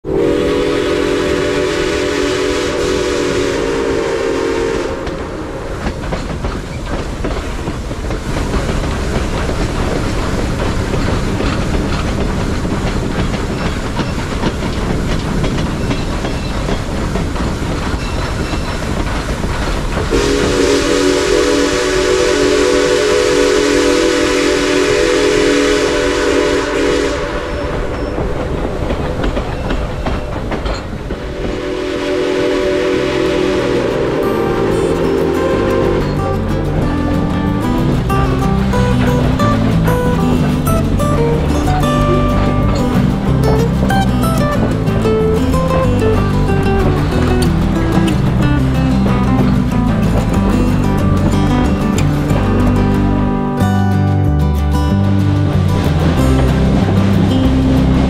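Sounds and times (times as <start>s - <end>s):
steam whistle chord: 0.0s - 5.9s, 20.1s - 28.4s, 31.2s - 54.2s
train rumble and rail clatter: 0.0s - 58.0s.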